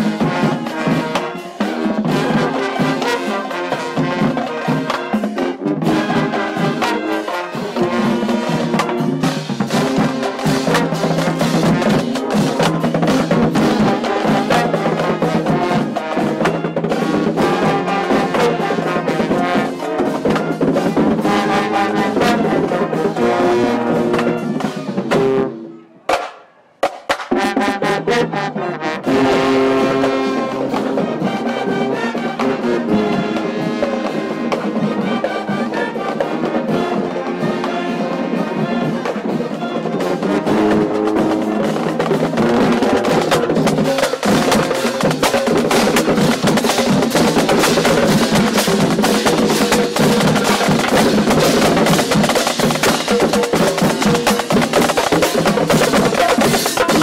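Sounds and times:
marching band playing: 0.0s - 57.0s
snare drums: 0.0s - 57.0s.

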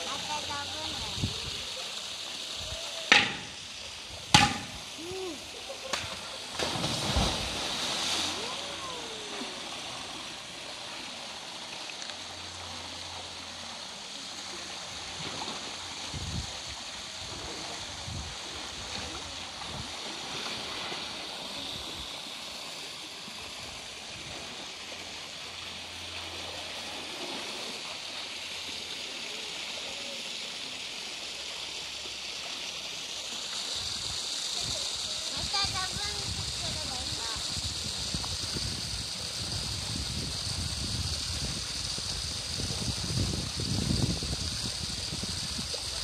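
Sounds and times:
water rushing and splashing: 0.0s - 46.0s.

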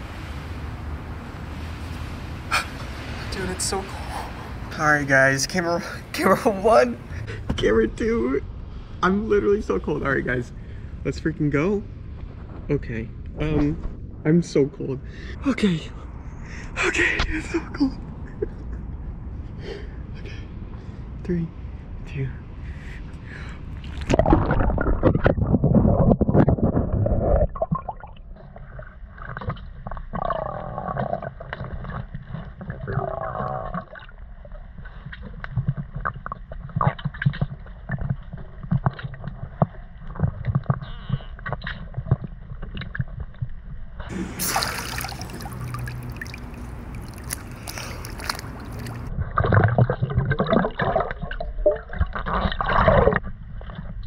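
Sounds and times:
water rushing and bubbles: 23.8s - 40.7s, 44.1s - 54.0s
hissing splash: 44.1s - 49.1s.

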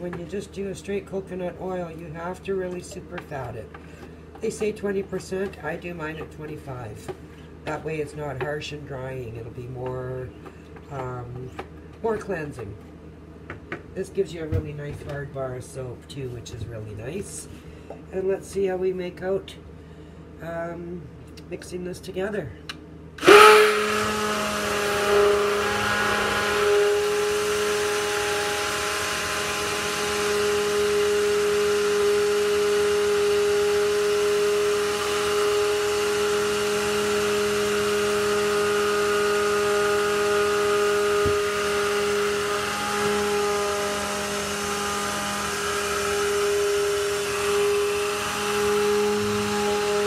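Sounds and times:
stick blender motor humming: 23.2s - 50.0s.

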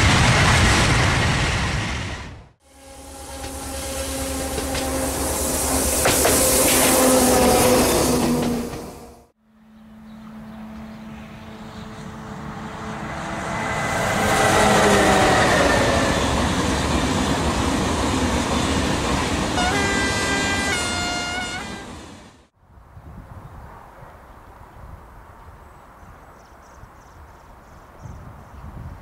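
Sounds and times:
train passing: 0.0s - 22.6s
higher horn stepping in pitch: 2.6s - 9.2s, 19.6s - 22.0s
low train horn: 2.6s - 16.4s, 19.4s - 22.4s.

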